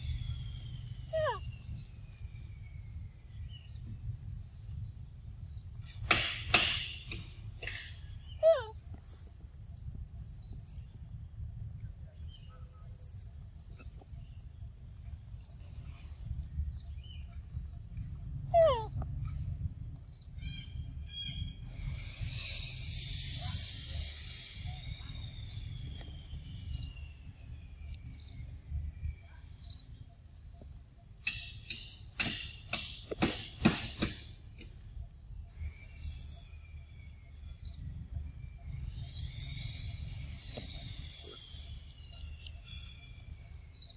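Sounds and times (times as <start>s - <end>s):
bird calls: 0.0s - 4.0s, 5.4s - 10.9s, 15.1s - 19.4s, 35.5s - 43.9s
high insect drone: 0.0s - 43.9s
sharp knocks: 6.0s - 7.8s, 31.2s - 34.3s
low rumble: 13.2s - 22.4s
high buzzing hiss: 21.7s - 28.3s, 39.1s - 43.8s.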